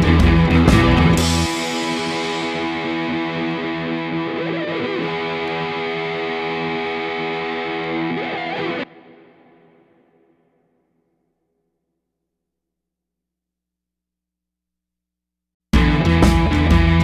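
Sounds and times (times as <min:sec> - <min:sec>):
instrumental music with held chords: 0:00.0 - 0:10.4, 0:15.8 - 0:17.0.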